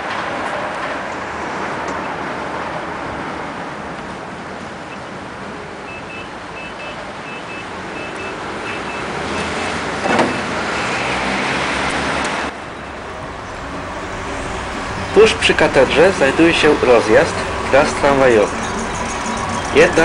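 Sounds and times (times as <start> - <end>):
city street traffic: 0.0 - 20.0.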